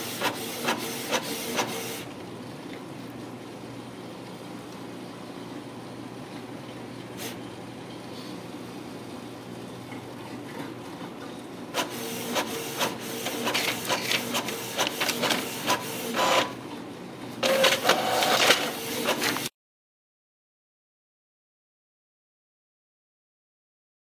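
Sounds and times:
paper feeding out of printer: 0:00.0 - 0:02.0, 0:11.8 - 0:16.5, 0:17.4 - 0:19.5
inkjet printer printing: 0:00.0 - 0:02.1, 0:11.7 - 0:16.8, 0:17.4 - 0:19.5
print head clicks and whirring: 0:00.0 - 0:02.2, 0:11.7 - 0:16.8, 0:17.4 - 0:19.5.

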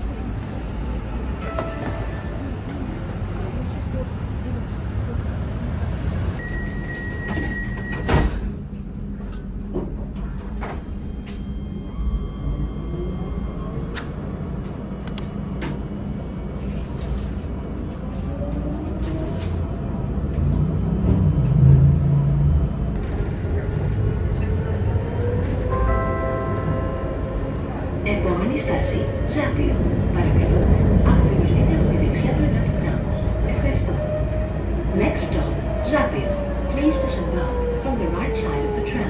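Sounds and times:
tram motors whining: 0:00.0 - 0:39.0
tram rumble: 0:00.0 - 0:39.0
door warning tone: 0:06.4 - 0:08.4, 0:10.6 - 0:14.3.

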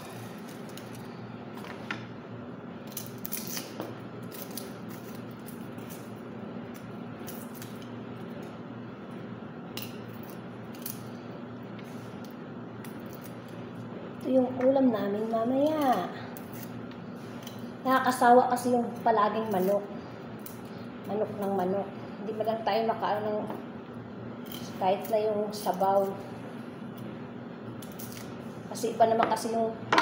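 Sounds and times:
steady low hum: 0:00.0 - 0:30.0
knife scraping garlic skins: 0:15.4 - 0:17.6, 0:18.8 - 0:19.8, 0:24.4 - 0:26.2.

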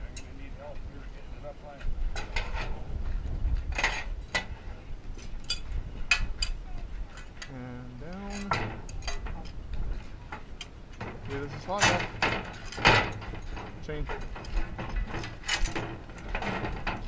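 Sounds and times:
iron tire and tongs clanking: 0:10.3 - 0:17.0.

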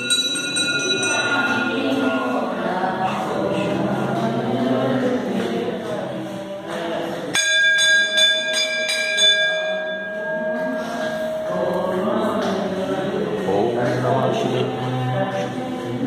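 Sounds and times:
temple bell struck rapidly: 0:00.0 - 0:02.6, 0:07.3 - 0:11.7
group chanting: 0:00.0 - 0:08.6, 0:09.9 - 0:16.0.

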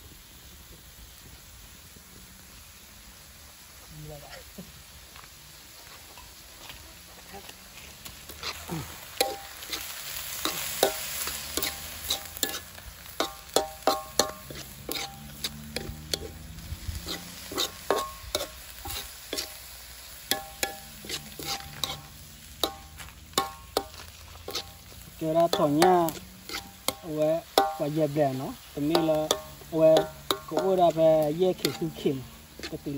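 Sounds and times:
frying sizzle: 0:00.0 - 0:32.9
metal spoon scraping a wok: 0:08.0 - 0:32.9.

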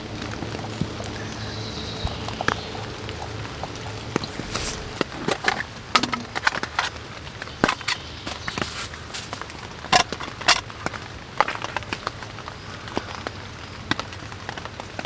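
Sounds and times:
camping gear clicks: 0:04.0 - 0:15.0.

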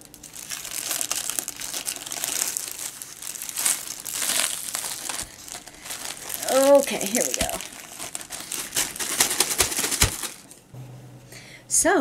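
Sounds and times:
plastic sleeve crinkling: 0:00.0 - 0:10.7.

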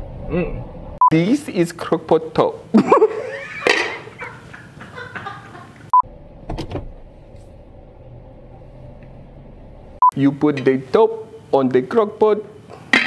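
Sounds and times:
vehicle cabin hum: 0:05.9 - 0:10.2.

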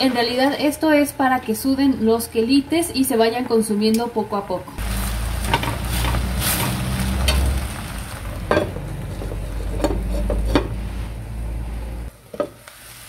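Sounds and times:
greens sizzling in oil: 0:04.8 - 0:09.2, 0:12.1 - 0:13.0.

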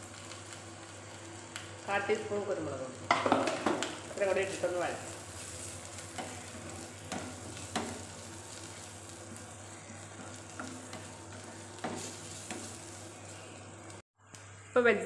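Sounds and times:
vegetables sizzling in a frying pan: 0:00.0 - 0:14.0
spatula scraping and tapping pan: 0:05.4 - 0:08.9, 0:10.1 - 0:13.0.

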